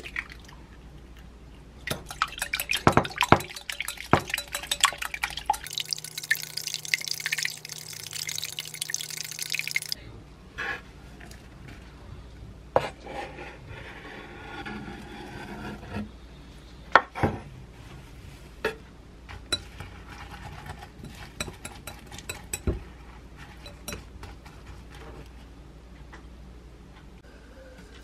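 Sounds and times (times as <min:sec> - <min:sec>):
utensil clinking glass bowl: 0:01.9 - 0:10.0, 0:21.0 - 0:22.8, 0:23.6 - 0:24.1.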